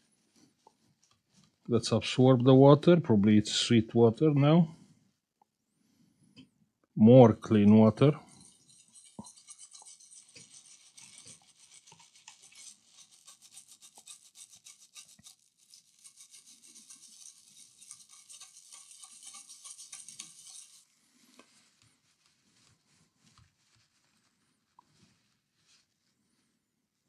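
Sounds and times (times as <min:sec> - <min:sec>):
brush scrubbing in water: 0:07.4 - 0:24.8
faint rustling: 0:15.4 - 0:27.0.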